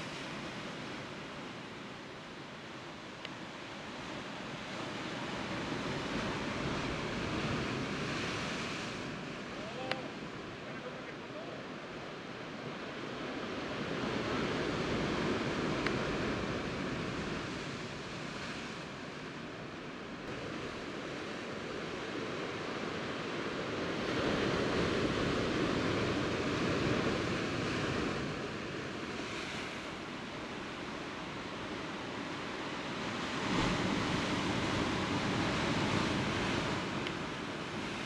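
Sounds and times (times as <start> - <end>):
surf washing against rocks: 20.3 - 38.0.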